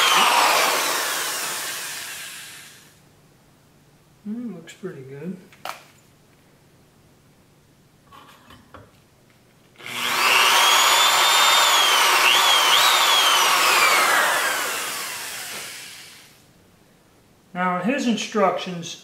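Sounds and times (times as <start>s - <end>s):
electric drill whining: 0.0s - 3.0s, 9.8s - 16.4s.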